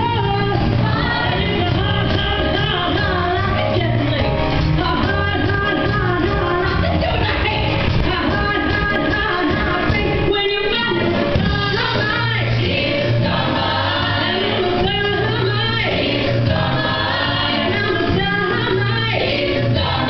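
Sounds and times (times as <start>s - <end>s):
instrumental accompaniment: 0.0s - 20.0s
cast singing ensemble number: 11.5s - 20.0s.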